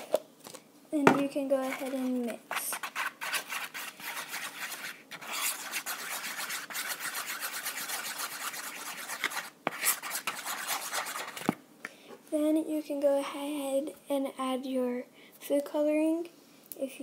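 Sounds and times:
spoon scraping a bowl: 1.6s - 11.4s.

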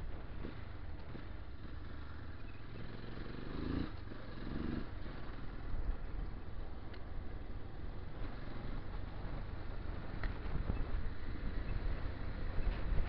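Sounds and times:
wind noise on microphone: 8.9s - 13.0s.

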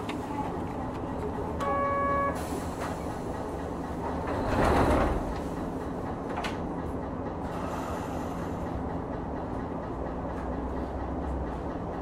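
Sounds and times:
tram motor and wheels rumbling: 0.0s - 12.0s
wheels clicking over rail joints: 2.7s - 7.7s.

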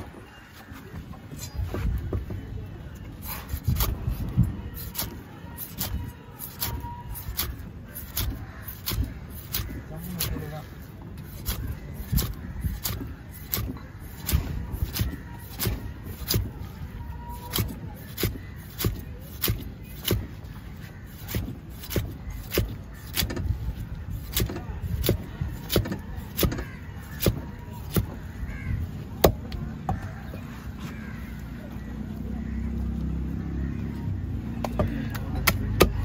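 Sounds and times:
knife chopping fish on wooden block: 11.3s - 16.6s, 17.4s - 20.4s, 21.1s - 23.6s, 24.2s - 28.2s, 34.6s - 36.0s.

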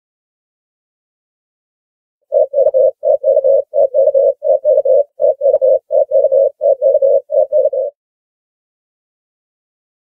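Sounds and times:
dove cooing: 2.3s - 8.0s.

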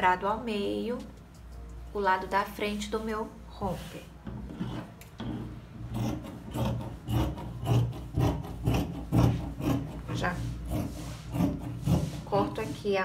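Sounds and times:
scissors cutting fabric: 4.5s - 12.7s.

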